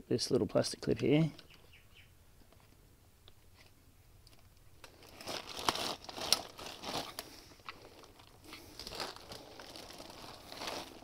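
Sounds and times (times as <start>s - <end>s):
plastic crinkling and clicking: 2.4s - 11.0s.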